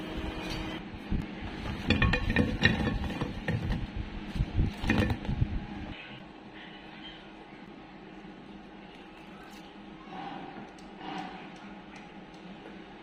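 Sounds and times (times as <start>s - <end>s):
kitchenware clattering: 1.7s - 3.8s.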